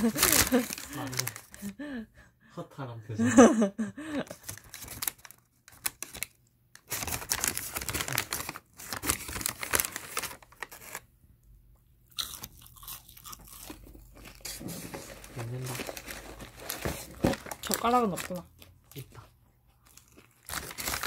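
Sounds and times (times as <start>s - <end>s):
paper bag rustling: 0.0s - 1.7s, 4.4s - 11.0s, 14.3s - 18.4s, 20.5s - 21.0s
crunchy food being chewed: 12.1s - 14.7s, 18.6s - 21.0s.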